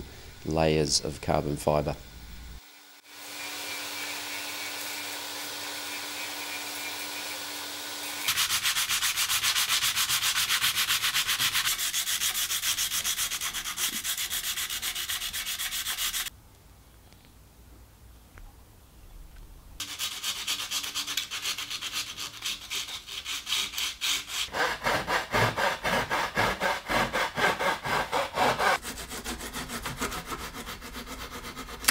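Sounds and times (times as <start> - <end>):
rotary tool grinding: 2.6 - 16.3, 19.8 - 31.9
sanding block rubbing: 5.6 - 16.3, 19.8 - 31.9.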